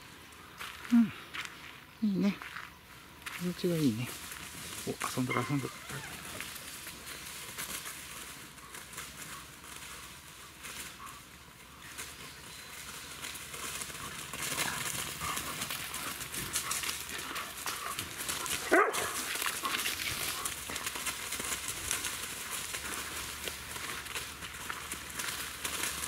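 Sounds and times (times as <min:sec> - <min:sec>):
dogs rustling dry leaves: 0:02.8 - 0:26.0
dog barking: 0:05.3 - 0:06.1, 0:18.6 - 0:19.3.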